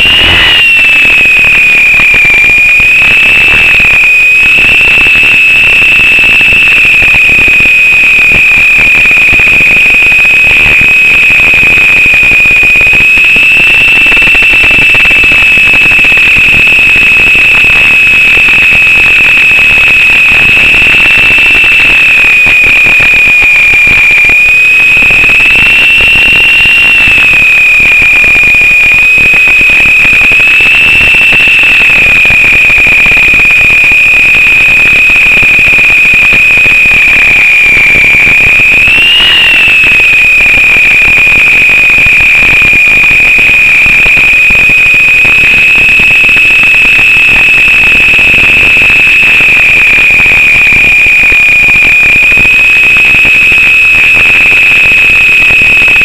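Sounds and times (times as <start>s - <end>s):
toy helicopter rotors whining: 0.0s - 1.8s.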